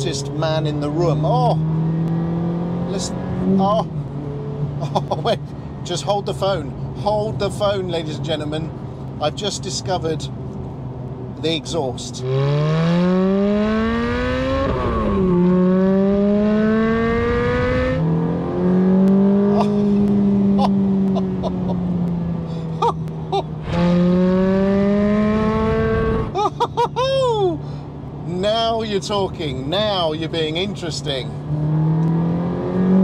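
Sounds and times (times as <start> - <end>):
car engine revving: 0.0 - 4.9, 12.2 - 26.4, 31.3 - 33.0.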